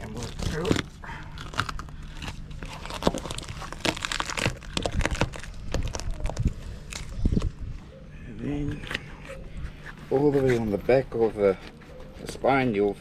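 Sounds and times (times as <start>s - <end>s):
knife crunching through fish bones: 0.0s - 7.5s.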